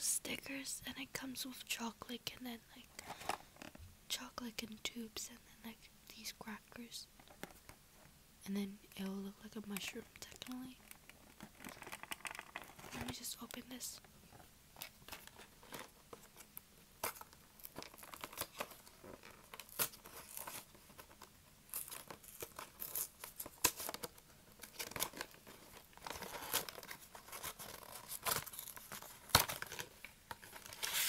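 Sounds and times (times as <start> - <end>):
plastic packaging ripping and crinkling: 10.2 - 13.6, 14.8 - 31.0.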